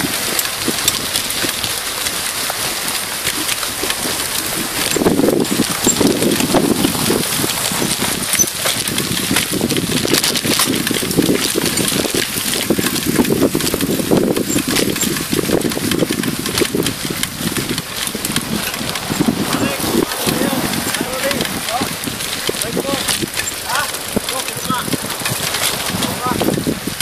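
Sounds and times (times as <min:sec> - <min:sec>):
bike rattling and knocking: 0:00.0 - 0:27.0
wind buffeting microphone: 0:00.0 - 0:27.0.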